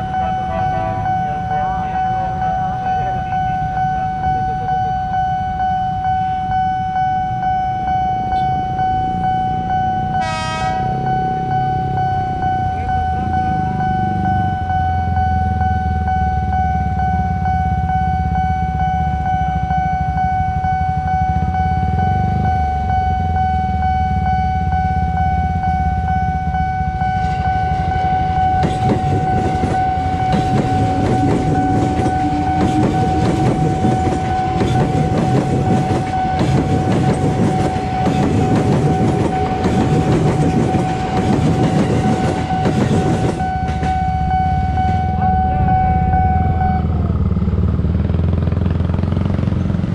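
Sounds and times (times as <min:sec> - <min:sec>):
level crossing warning tone: 0:00.0 - 0:49.6
traffic rumble: 0:00.0 - 0:49.9
train wheels clattering: 0:27.2 - 0:44.0.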